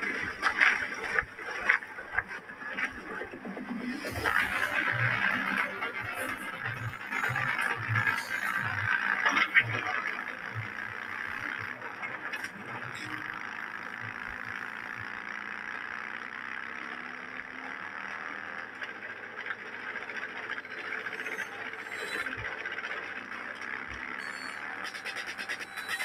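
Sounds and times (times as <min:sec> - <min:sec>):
motorcycle engine at speed: 0:00.0 - 0:26.0.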